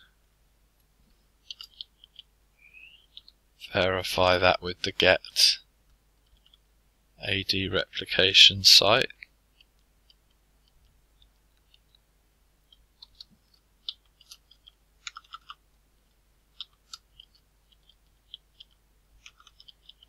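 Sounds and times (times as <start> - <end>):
computer keyboard typing: 12.7 - 15.6, 16.5 - 20.0.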